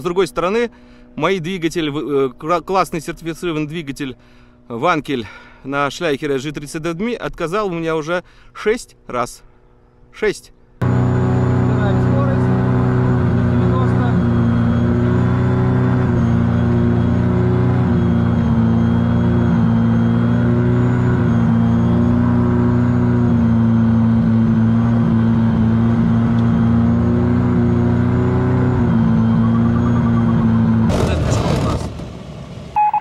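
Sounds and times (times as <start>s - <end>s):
rotary engine running loud: 10.8s - 32.8s.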